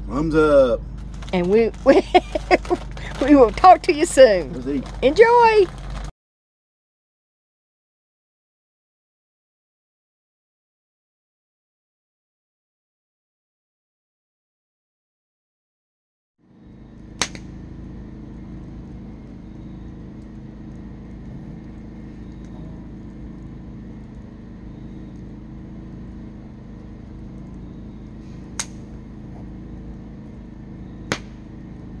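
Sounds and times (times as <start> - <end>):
burning logs popping: 0.0 - 6.1, 16.6 - 32.0
campfire low rumble: 0.0 - 6.1, 16.4 - 32.0.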